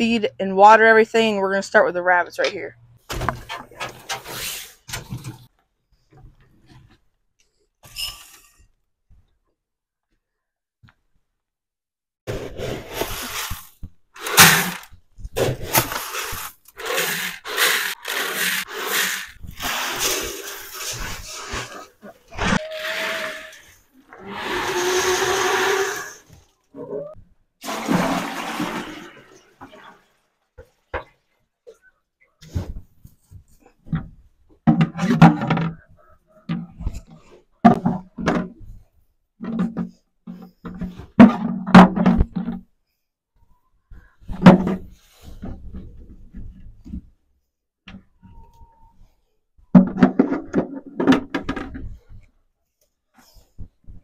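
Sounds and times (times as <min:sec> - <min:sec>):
plastic buckets rustling and scraping: 0:02.6 - 0:07.2, 0:12.3 - 0:42.7, 0:43.9 - 0:47.2, 0:49.7 - 0:52.3.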